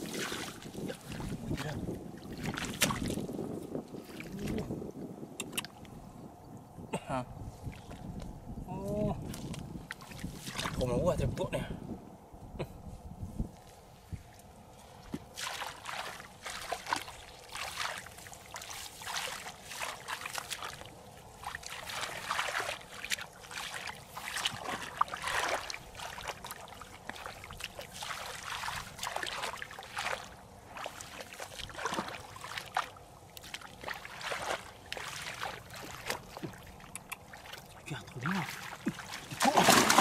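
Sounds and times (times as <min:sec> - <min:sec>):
hands splashing in muddy water: 0:00.0 - 0:04.8, 0:09.2 - 0:10.8, 0:15.1 - 0:40.0.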